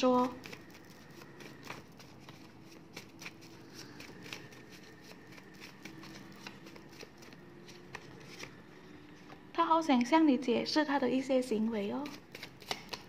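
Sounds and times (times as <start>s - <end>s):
cards being shuffled: 0.1s - 8.7s, 12.0s - 13.0s.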